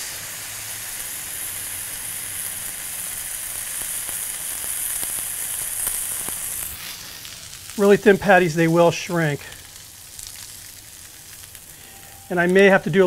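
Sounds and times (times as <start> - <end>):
burger patty sizzling on griddle: 0.0 - 13.0
fat popping and crackling: 3.8 - 13.0.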